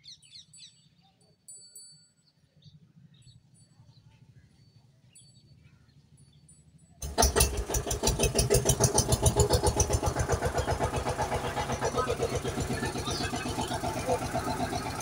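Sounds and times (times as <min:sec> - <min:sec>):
tractor engine chugging: 0:06.6 - 0:15.0.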